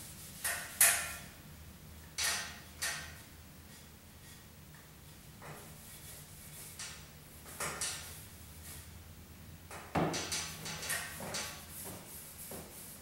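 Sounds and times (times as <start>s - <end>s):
cloth rag rubbing wood: 10.9s - 13.0s.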